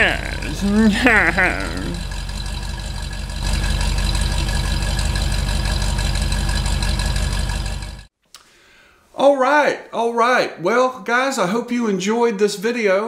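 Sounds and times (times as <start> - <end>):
pickup truck engine running: 0.0 - 8.1.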